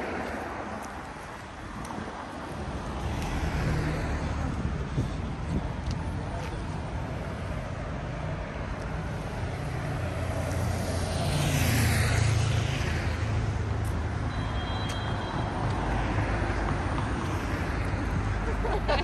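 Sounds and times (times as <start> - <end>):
low rumble of traffic: 0.0 - 19.0
vehicle passing close by: 9.6 - 13.6.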